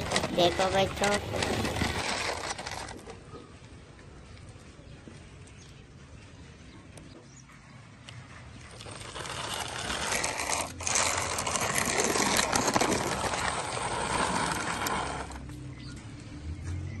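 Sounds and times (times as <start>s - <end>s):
toy car rattling on concrete: 0.0s - 3.5s, 8.5s - 15.6s.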